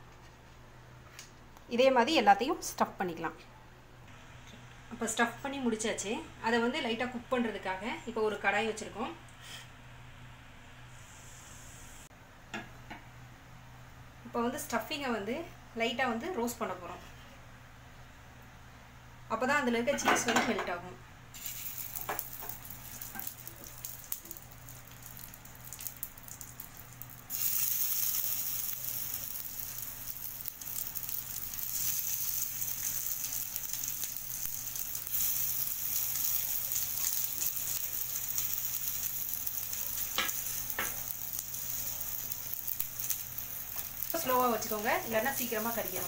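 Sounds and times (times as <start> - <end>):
food sizzling in a frying pan: 21.3 - 46.0.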